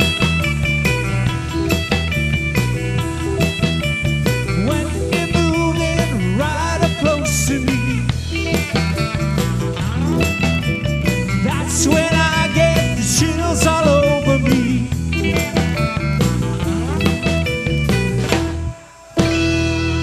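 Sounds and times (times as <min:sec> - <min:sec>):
bending guitar notes: 0:00.0 - 0:20.0
rock band playing: 0:00.0 - 0:20.0.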